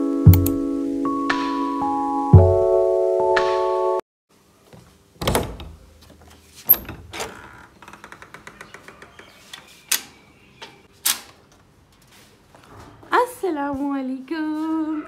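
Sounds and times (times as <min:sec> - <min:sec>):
keyboard jingle: 0:00.0 - 0:04.0
door knocks and clicks: 0:05.2 - 0:05.8.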